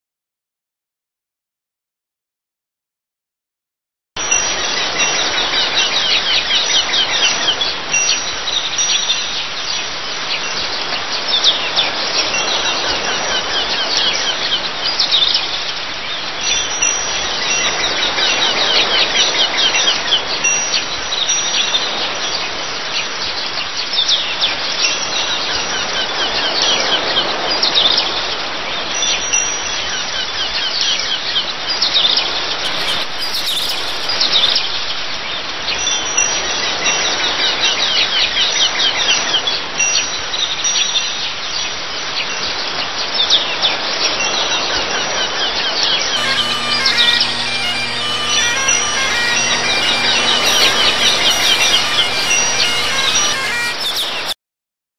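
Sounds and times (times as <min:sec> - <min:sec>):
birds chirping: 0:32.7 - 0:34.6, 0:46.2 - 0:54.4.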